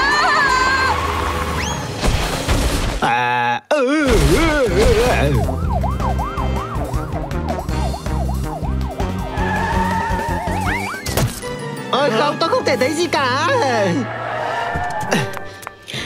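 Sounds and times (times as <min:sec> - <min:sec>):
background music: 0:04.1 - 0:16.0
cartoon police siren: 0:05.2 - 0:11.1.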